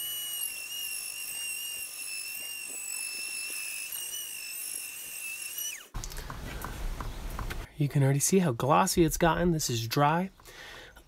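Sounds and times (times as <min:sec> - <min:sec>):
rotary tool whining: 0:00.0 - 0:06.3.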